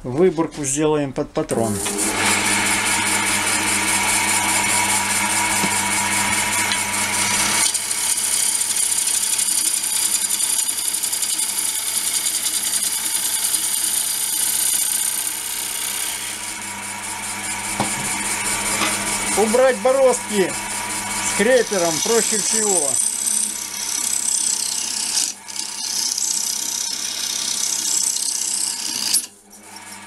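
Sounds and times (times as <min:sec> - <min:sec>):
turning tool cutting wood: 0:01.5 - 0:30.0
lathe motor hum: 0:01.7 - 0:30.0.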